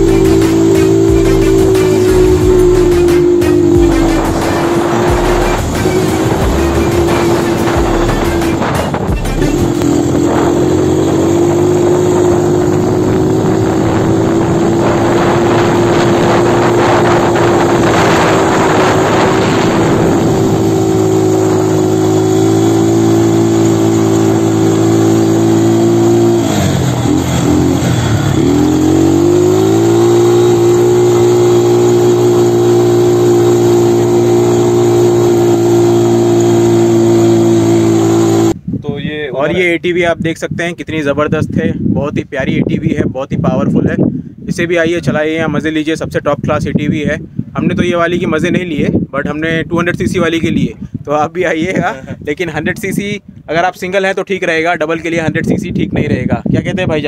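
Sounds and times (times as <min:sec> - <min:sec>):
quad bike engine running: 0:00.0 - 0:38.6.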